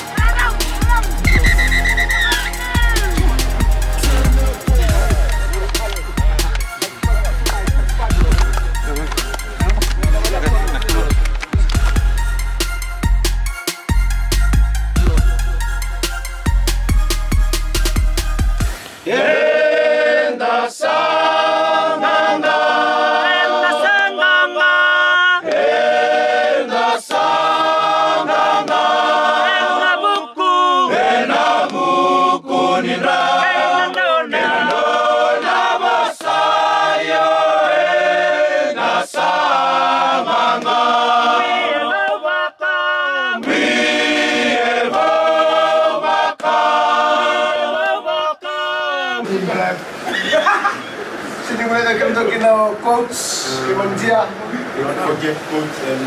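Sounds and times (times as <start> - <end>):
men singing in harmony: 1.0 - 5.6, 19.0 - 42.5, 43.4 - 48.1.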